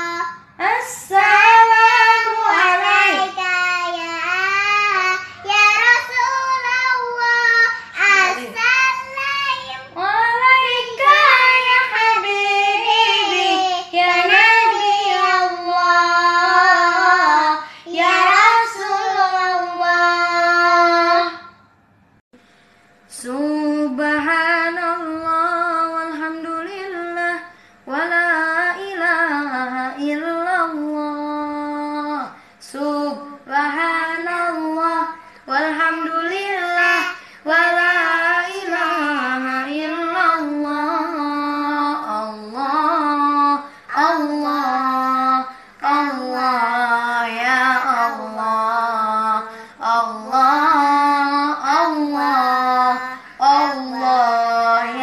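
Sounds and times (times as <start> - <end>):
children singing unaccompanied: 1.1 - 21.4, 50.0 - 55.0.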